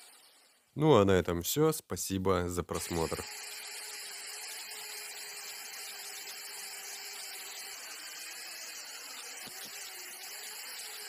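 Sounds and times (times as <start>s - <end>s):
electric drill motor whining: 2.8s - 11.0s.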